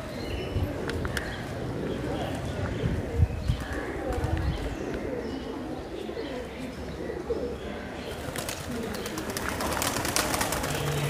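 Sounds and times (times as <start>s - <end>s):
pigeons cooing: 0.0s - 11.0s
wings flapping: 8.2s - 11.0s.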